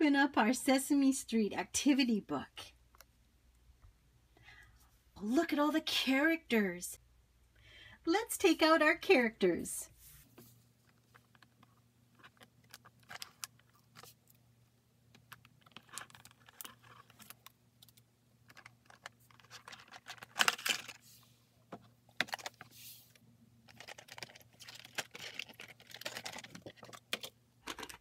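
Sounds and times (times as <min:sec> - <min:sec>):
thin plastic crackling: 0:10.8 - 0:14.4, 0:15.1 - 0:21.0, 0:23.6 - 0:28.0.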